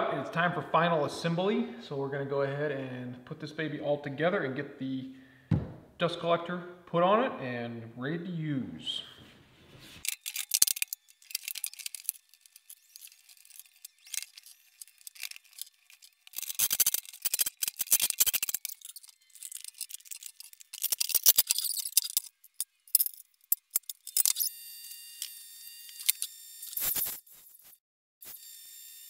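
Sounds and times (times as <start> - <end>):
cordless driver running screws: 10.0 - 22.7
clicks and knocks of parts handled: 10.0 - 24.5.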